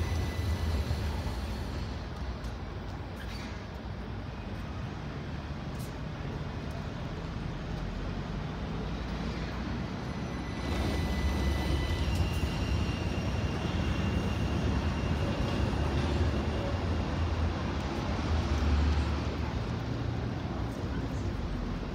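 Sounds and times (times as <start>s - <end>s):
tram traction motors whining: 0.0s - 3.0s, 7.3s - 18.3s.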